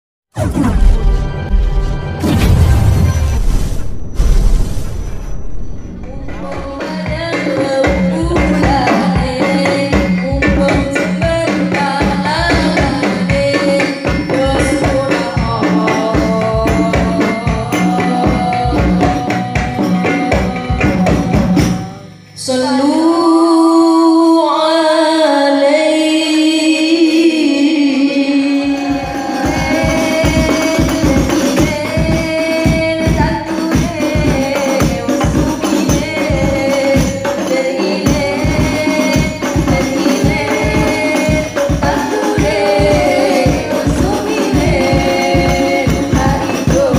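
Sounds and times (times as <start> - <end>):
women singing through microphones: 6.1 - 46.9
frame drums rhythm: 6.4 - 22.3, 28.6 - 46.9
solo voice singing held notes: 13.6 - 46.9.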